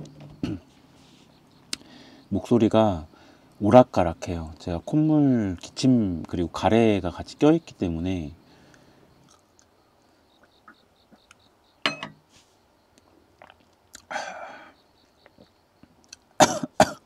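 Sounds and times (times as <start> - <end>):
man coughing: 0.4 - 0.7, 16.4 - 17.0
mouth clicks: 13.4 - 14.2.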